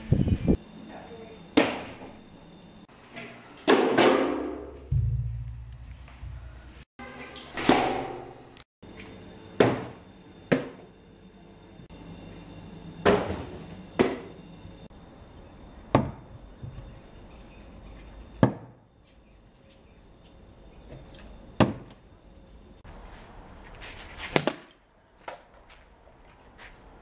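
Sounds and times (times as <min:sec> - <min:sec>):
low rumble: 0:04.9 - 0:06.8.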